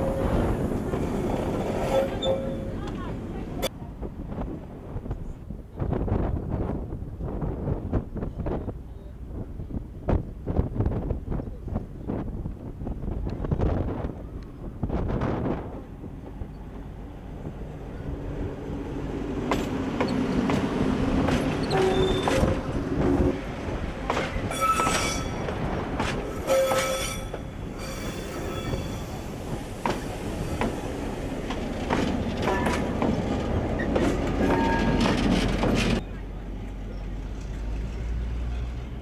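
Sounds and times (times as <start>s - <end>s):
high wheel squeals: 1.8s - 2.8s, 21.5s - 22.6s, 24.5s - 25.5s, 26.4s - 29.4s
diesel locomotive running: 13.2s - 39.0s
train wheels clicking over rail joints: 19.4s - 36.0s.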